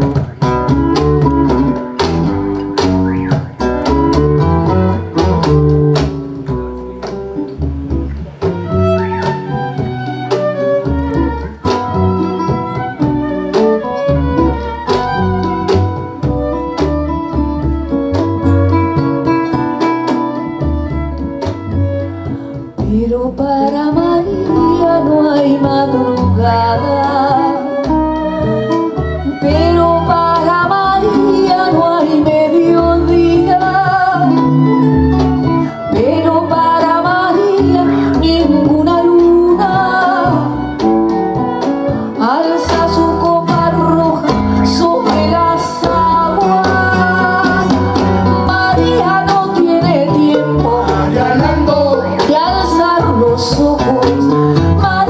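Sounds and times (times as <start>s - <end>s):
percussion hits: 0.0s - 23.0s, 42.7s - 55.0s
bass: 0.0s - 55.0s
guitar: 0.0s - 55.0s
woman singing: 9.1s - 55.0s.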